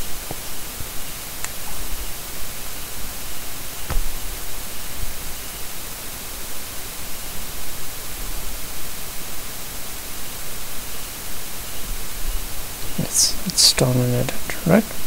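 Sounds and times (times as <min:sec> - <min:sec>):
static-like recording hiss: 0:00.0 - 0:15.0.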